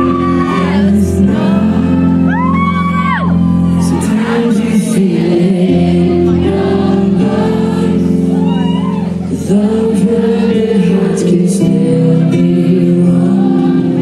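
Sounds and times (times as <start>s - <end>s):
live pop rock band: 0.0s - 14.0s
person singing: 0.0s - 14.0s.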